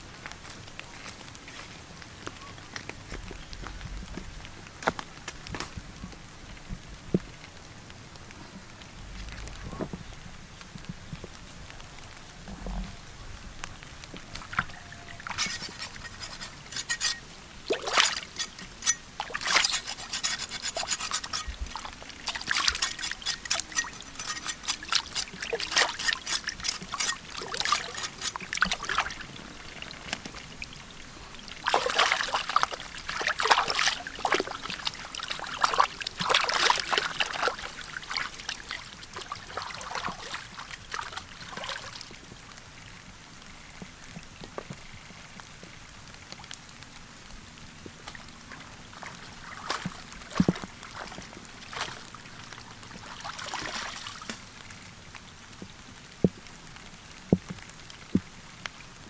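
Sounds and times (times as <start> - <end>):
rubbing and light splashing: 14.1 - 30.6, 31.5 - 41.8
knife scraping skin: 15.3 - 21.6, 22.2 - 28.8.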